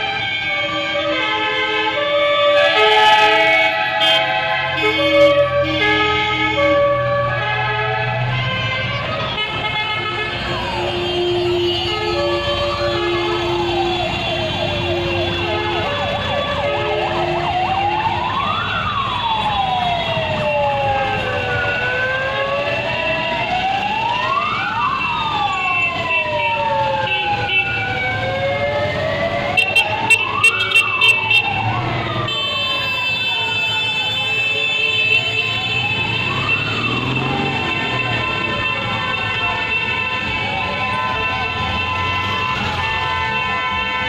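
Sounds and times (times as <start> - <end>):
siren wailing: 1.9 - 9.3, 10.2 - 44.0
second siren: 10.5 - 43.9
passing car engines: 35.0 - 43.8.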